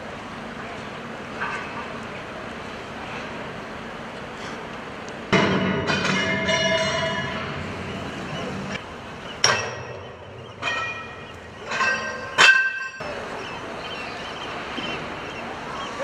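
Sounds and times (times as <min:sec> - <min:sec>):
steel struck with metallic clangs: 0:05.3 - 0:07.8, 0:09.4 - 0:13.1.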